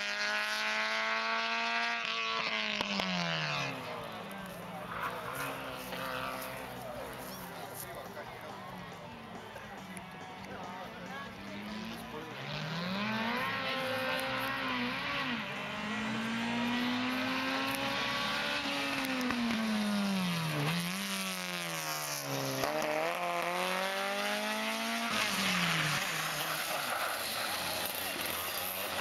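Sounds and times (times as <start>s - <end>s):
racing engines revving: 0.0s - 29.0s.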